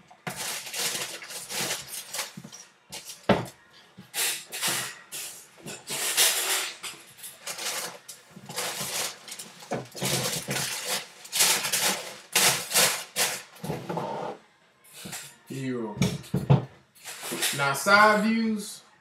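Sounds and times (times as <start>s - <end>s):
tissue paper rustling: 0.0s - 3.3s, 7.4s - 13.6s.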